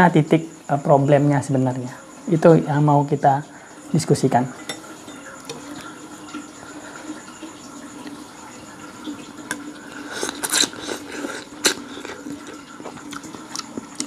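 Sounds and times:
noodle slurp: 9.5 - 14.0.

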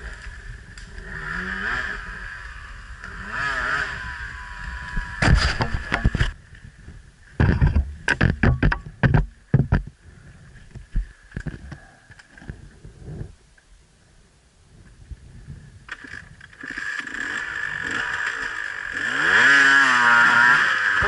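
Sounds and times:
dirt bike engine revving: 0.0 - 6.4, 16.0 - 21.0.

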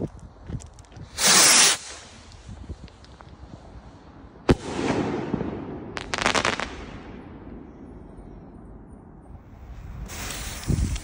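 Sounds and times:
firework launch whoosh: 1.1 - 2.2, 9.9 - 11.0
crackling pops: 10.1 - 11.0.

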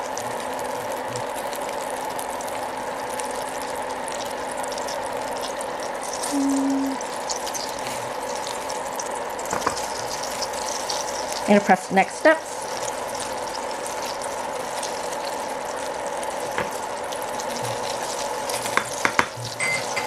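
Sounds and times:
butter sizzling in a pan: 0.0 - 20.0
short steady tone: 6.3 - 7.0.

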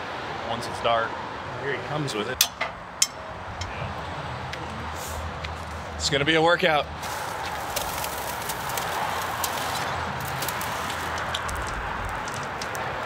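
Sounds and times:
plastic wrap crinkling: 7.1 - 12.8.

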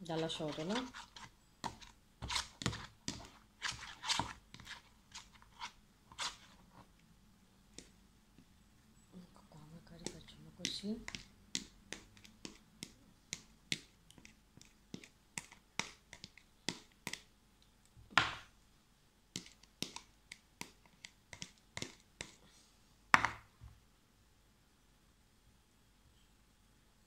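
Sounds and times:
spoon scraping plastic container: 0.1 - 6.9.

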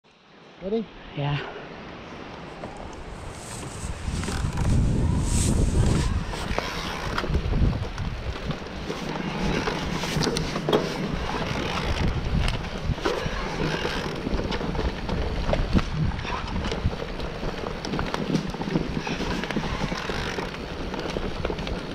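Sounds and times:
tyres rolling on dirt: 2.1 - 21.9
wind on microphone: 2.6 - 21.9
bike knocks and rattles: 5.7 - 21.9.

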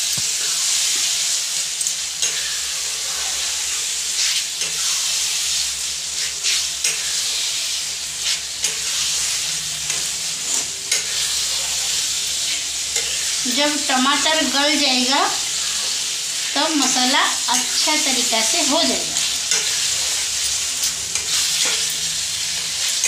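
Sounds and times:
tomatoes sizzling in hot oil: 0.0 - 23.0
spatula scraping a pan: 2.2 - 13.5, 19.2 - 23.0.

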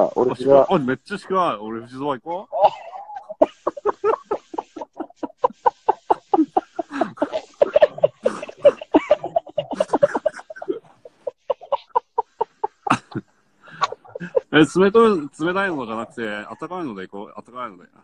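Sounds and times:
men laughing hard: 2.5 - 16.6.

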